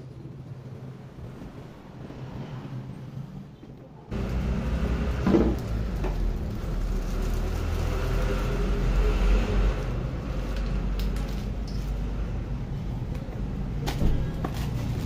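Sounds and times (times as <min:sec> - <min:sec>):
vehicle engine rumbling: 0:04.1 - 0:15.0.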